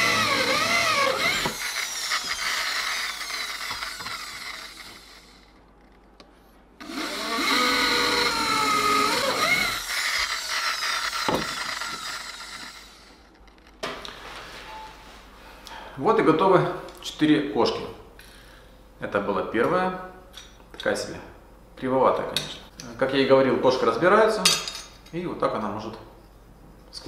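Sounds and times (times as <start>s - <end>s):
electric drill boring through steel: 0.0s - 5.5s, 6.8s - 13.2s.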